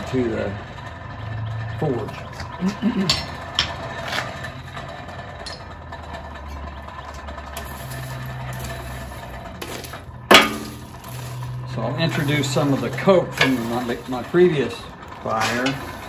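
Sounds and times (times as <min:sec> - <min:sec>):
forge blower whirring: 0:00.0 - 0:16.0
sharp metal clank: 0:10.3 - 0:11.2.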